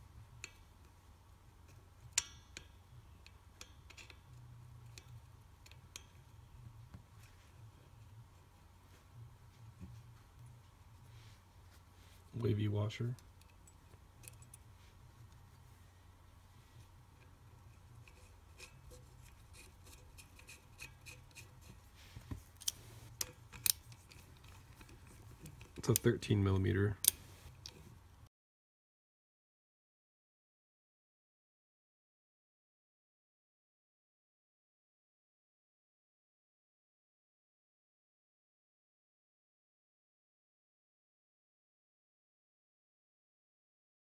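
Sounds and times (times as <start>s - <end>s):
faint low hum: 0.0s - 28.3s
small metal clicks and taps: 1.6s - 6.3s, 13.2s - 14.6s, 22.6s - 26.1s.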